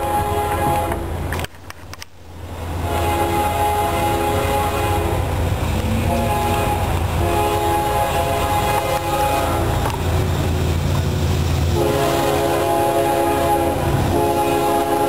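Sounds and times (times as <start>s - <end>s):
locomotive air horn blasts: 0.0s - 1.1s, 2.8s - 10.0s, 11.7s - 15.0s
train rumble: 0.0s - 15.0s.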